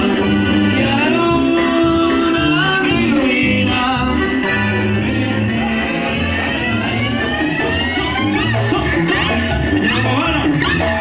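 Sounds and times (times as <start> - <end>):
brass band dance music: 0.0 - 11.0
sousaphone bass line: 0.0 - 11.0.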